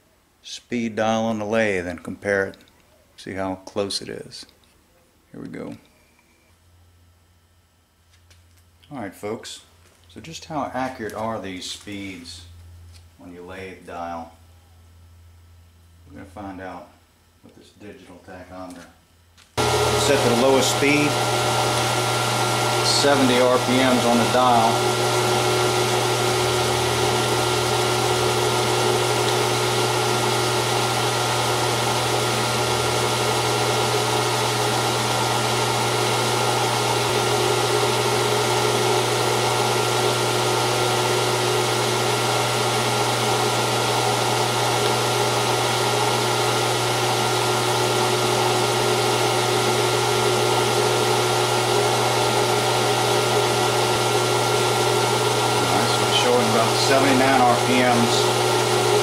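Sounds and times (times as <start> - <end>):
metal lathe motor and gears humming: 19.6 - 59.0.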